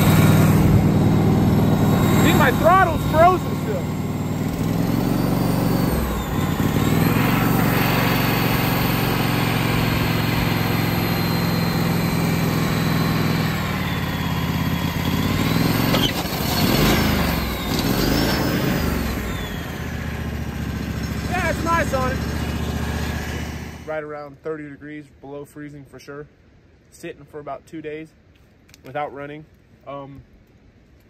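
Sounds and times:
gasoline engine running: 0:00.0 - 0:23.9.

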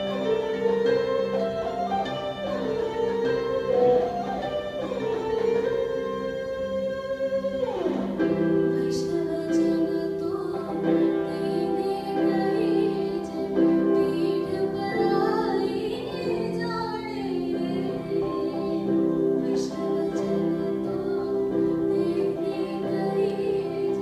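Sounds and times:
electric guitar: 0:00.0 - 0:24.0
electronic keyboard chords: 0:00.0 - 0:24.0
woman singing ornamented melody: 0:08.2 - 0:24.0.

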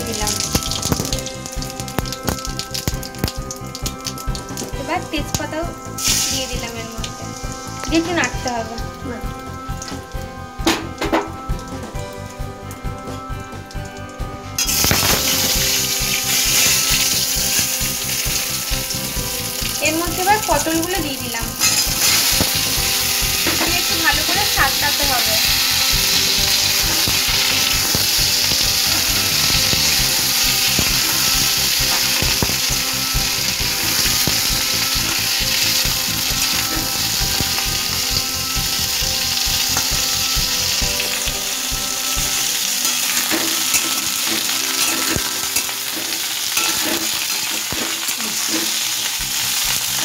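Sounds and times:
vegetables sizzling in oil: 0:00.0 - 0:12.3, 0:14.6 - 0:50.0
metal spatula scraping pan: 0:43.0 - 0:49.1.

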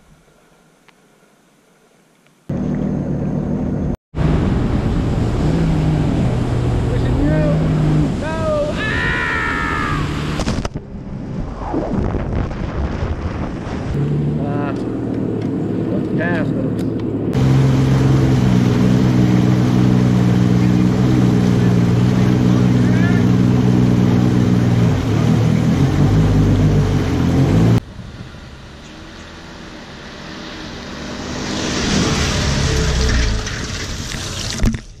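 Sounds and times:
jet ski engine running: 0:02.5 - 0:11.4, 0:13.2 - 0:34.1
rushing water: 0:04.2 - 0:10.8, 0:17.4 - 0:35.0.

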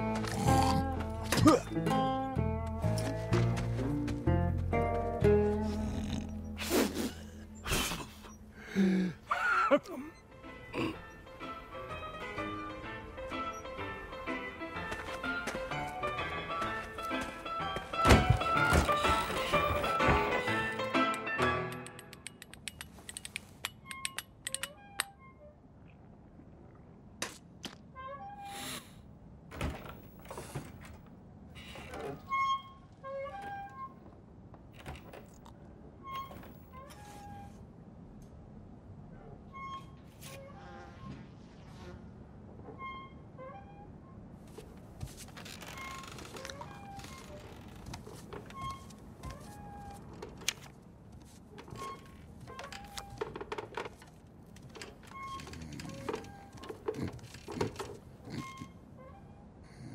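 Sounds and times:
paired short squeaks: 0:31.6 - 0:34.0, 0:39.4 - 0:41.3, 0:42.6 - 0:50.3, 0:51.5 - 0:53.8, 0:54.8 - 0:59.6.

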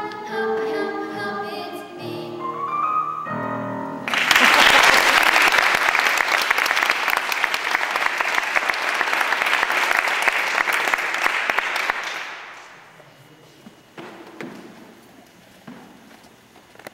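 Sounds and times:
audience clapping: 0:04.1 - 0:12.8.

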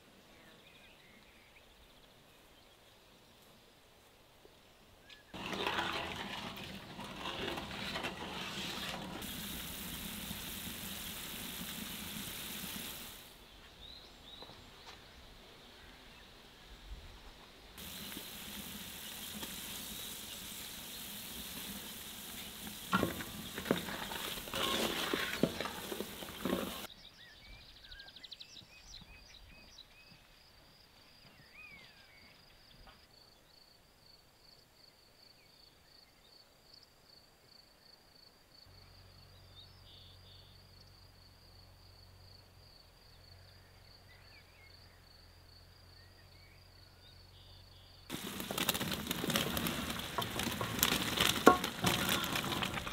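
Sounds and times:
knocks and scrapes: 0:05.4 - 0:13.2, 0:17.8 - 0:26.9, 0:48.1 - 0:52.9
liquid sizzling in a basin: 0:05.4 - 0:13.4, 0:17.8 - 0:26.9, 0:48.1 - 0:52.9.

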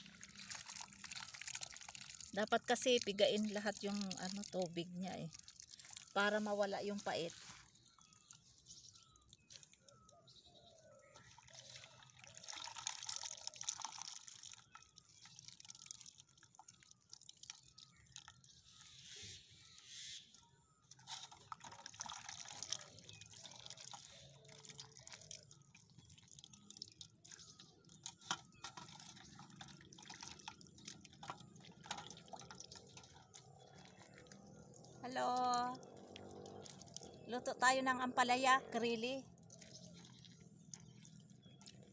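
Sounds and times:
hands squeezing food in water: 0:00.0 - 0:18.9, 0:20.3 - 0:37.3, 0:39.3 - 0:41.9
water dripping and splashing: 0:00.0 - 0:38.1, 0:39.0 - 0:41.9.

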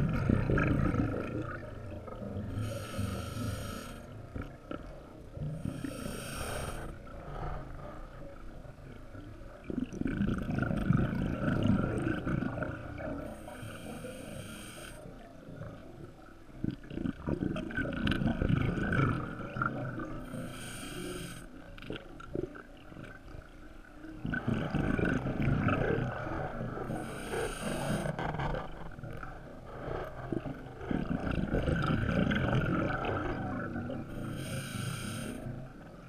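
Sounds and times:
exhaled bubbles rumbling: 0:00.0 - 0:03.0, 0:06.9 - 0:13.4, 0:15.4 - 0:20.4, 0:21.8 - 0:34.5
regulator inhale hiss: 0:02.5 - 0:04.2, 0:05.6 - 0:07.0, 0:13.3 - 0:15.1, 0:20.3 - 0:21.6, 0:26.9 - 0:28.2, 0:34.2 - 0:35.5.

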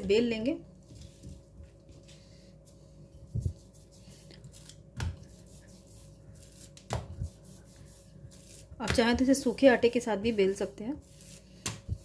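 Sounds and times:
rolling pin rolling dough: 0:03.2 - 0:12.0.

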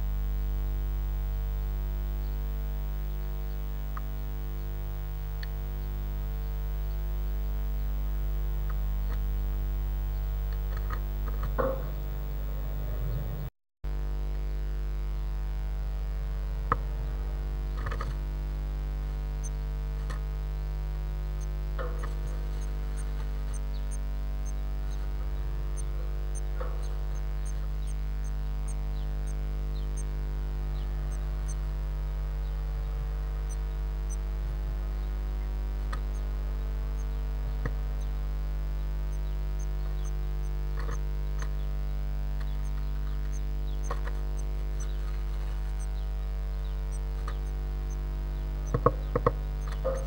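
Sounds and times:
low electrical hum: 0:00.0 - 0:50.0
bird knocking and scratching on wood: 0:48.7 - 0:50.0.

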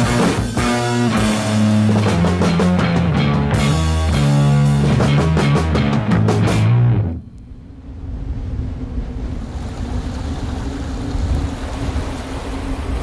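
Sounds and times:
rock music: 0:00.0 - 0:07.2
stream rushing over rocks: 0:09.4 - 0:13.0.

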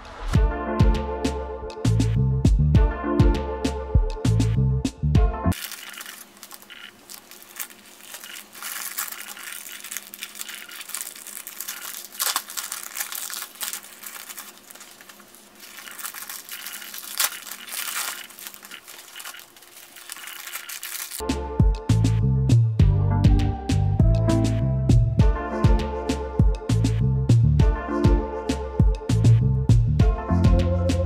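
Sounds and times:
plastic packaging crinkling: 0:05.6 - 0:21.2.

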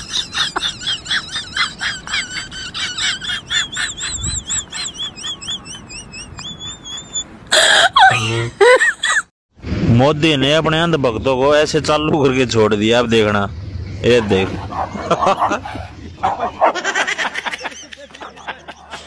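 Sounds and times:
birdlike chirps and warbling whistles: 0:04.0 - 0:07.3.

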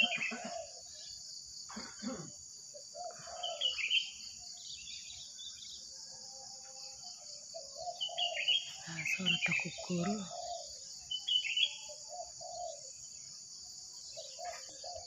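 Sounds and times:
dove cooing: 0:00.0 - 0:00.8, 0:02.9 - 0:04.0, 0:07.5 - 0:10.7, 0:11.9 - 0:12.9, 0:14.2 - 0:15.0
birds chirping: 0:00.0 - 0:05.9, 0:07.0 - 0:15.0
insects droning: 0:00.0 - 0:15.0.

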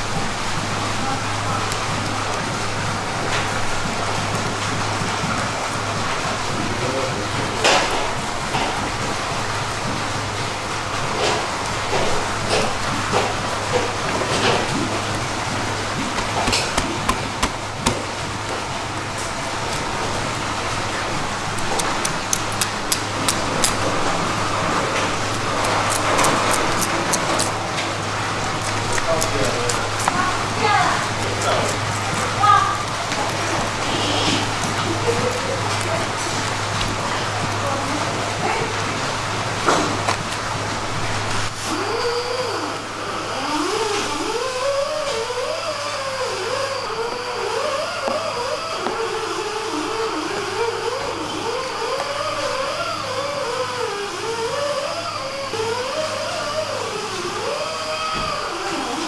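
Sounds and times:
background machinery hum and hiss: 0:00.0 - 0:59.0
knife clicking through bones: 0:21.6 - 0:23.9, 0:25.2 - 0:27.6, 0:28.5 - 0:30.2, 0:31.0 - 0:33.5.

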